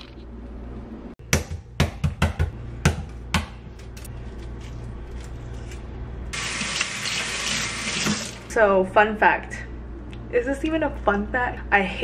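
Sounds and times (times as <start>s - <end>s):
kitchen faucet running: 6.4s - 8.5s.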